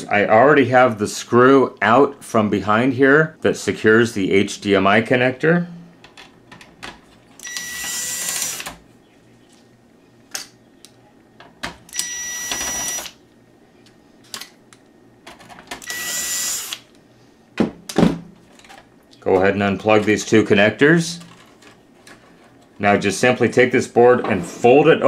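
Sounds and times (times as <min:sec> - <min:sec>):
electric screwdriver whine: 0:07.4 - 0:08.8, 0:11.9 - 0:13.2, 0:15.8 - 0:16.9.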